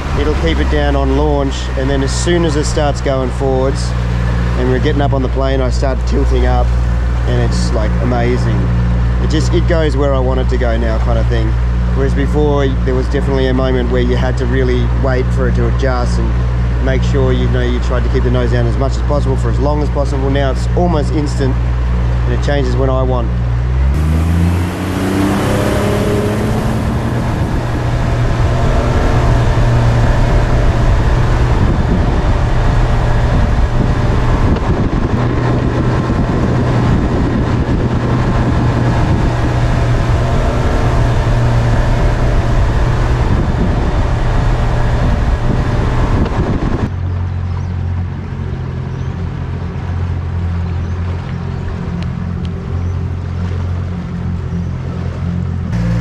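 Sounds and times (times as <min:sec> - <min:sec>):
rush of wind and water: 0:00.0 - 0:55.8
outboard motor revving: 0:00.0 - 0:56.0.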